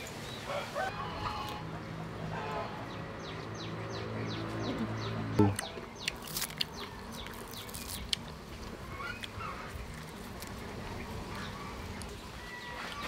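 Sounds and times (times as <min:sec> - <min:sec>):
birds calling: 0:00.0 - 0:13.0
crispy fried fish crackling: 0:06.1 - 0:11.2.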